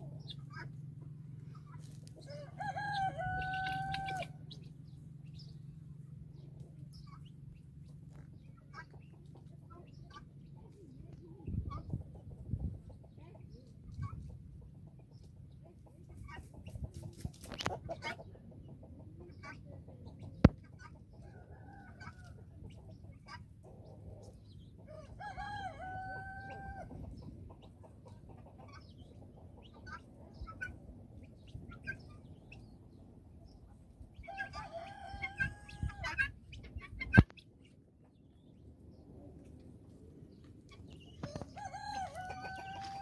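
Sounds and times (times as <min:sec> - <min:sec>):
short scattered calls and ticks: 0:00.1 - 0:02.3
rooster crowing: 0:02.3 - 0:04.4, 0:24.9 - 0:26.9, 0:41.2 - 0:43.0.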